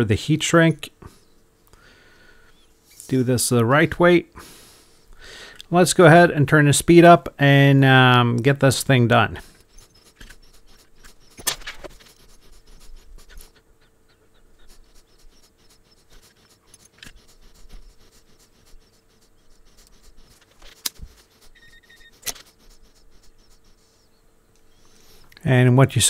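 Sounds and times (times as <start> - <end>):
faint steady hum: 0.0 - 26.0
multimeter beep: 21.5 - 23.6.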